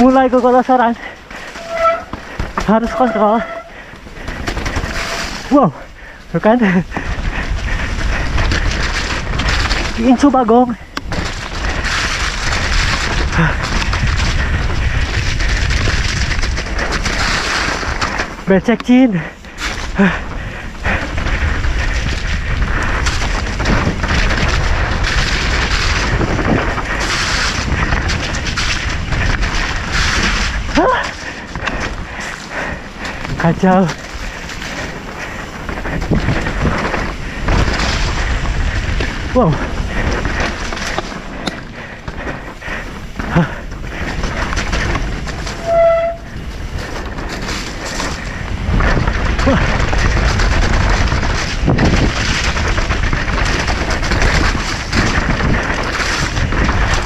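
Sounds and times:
bike rattling and knocking: 0.0 - 57.0
wind buffeting microphone: 0.0 - 57.0
disc brake squeal: 2.8 - 3.7.

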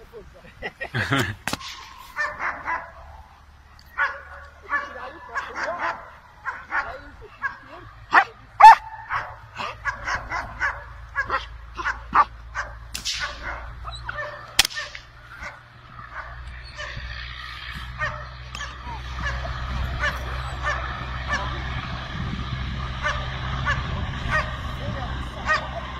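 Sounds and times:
dog barking excitedly: 2.2 - 3.1, 3.9 - 14.6, 15.3 - 17.1, 17.9 - 21.7, 23.0 - 24.6, 25.4 - 25.9
low rumble: 9.0 - 25.9.

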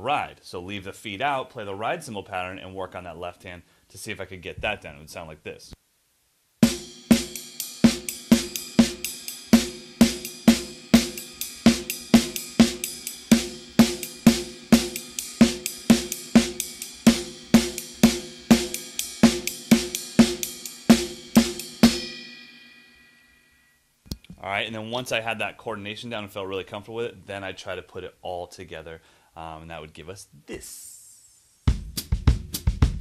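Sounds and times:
drum kit playing: 6.6 - 22.9, 31.7 - 33.0
ride cymbal pattern: 6.6 - 23.7.

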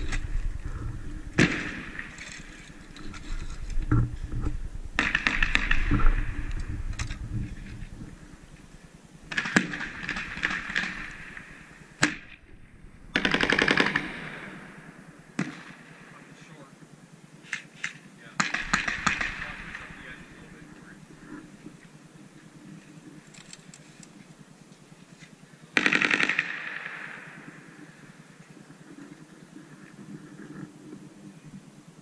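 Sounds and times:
airsoft gun bursts: 13.1 - 14.6, 18.4 - 20.0, 25.8 - 27.0
airsoft gun single shots: 18.4 - 19.8.

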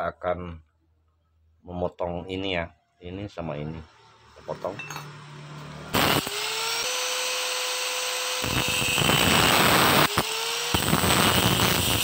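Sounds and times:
angle grinder whining: 3.7 - 12.0
grinder cutting steel: 3.8 - 12.0.

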